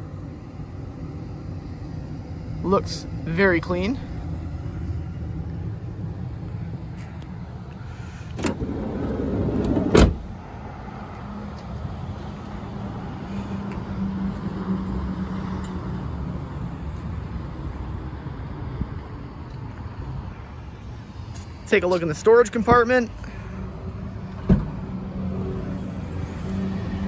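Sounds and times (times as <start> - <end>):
sliding door rolling along track: 8.4 - 10.1
sliding door slamming: 8.4 - 10.3.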